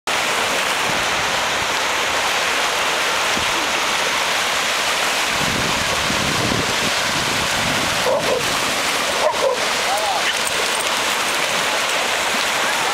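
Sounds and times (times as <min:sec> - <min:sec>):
small waves breaking on sand: 0:00.1 - 0:12.9
wind rumble on microphone: 0:05.2 - 0:08.9.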